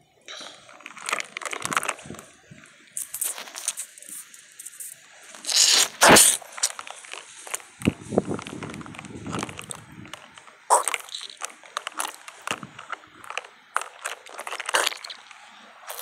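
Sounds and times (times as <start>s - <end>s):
plastic toys being moved: 0.3s - 16.0s
straw rustling and crunching: 0.3s - 16.0s.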